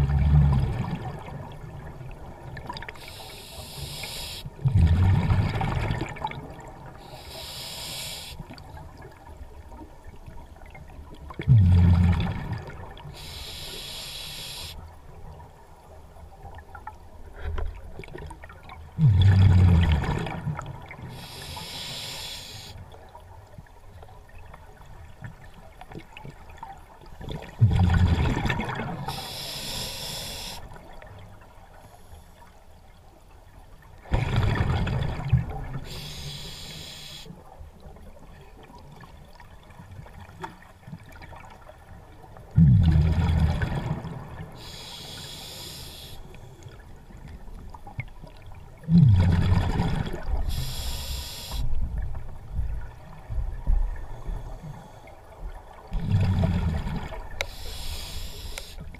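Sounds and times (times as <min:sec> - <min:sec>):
regulator inhalation hiss: 0:03.0 - 0:04.5, 0:07.1 - 0:08.4, 0:13.2 - 0:14.8, 0:21.1 - 0:22.8, 0:29.1 - 0:30.7, 0:35.9 - 0:37.3, 0:44.6 - 0:46.3, 0:50.5 - 0:51.7, 0:57.4 - 0:58.8
gurgling exhaled bubbles: 0:04.6 - 0:06.8, 0:11.4 - 0:13.0, 0:18.9 - 0:21.0, 0:27.3 - 0:29.2, 0:34.0 - 0:35.9, 0:42.5 - 0:44.7, 0:48.8 - 0:50.8, 0:55.9 - 0:58.1.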